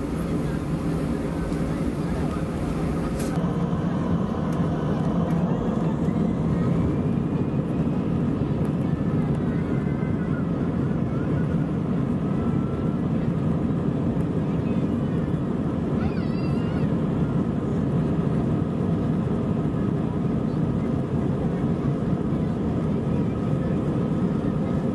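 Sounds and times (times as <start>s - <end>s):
airframe rolling over taxiway: 0.0s - 3.8s
jet engines rumbling in cabin: 0.0s - 24.9s.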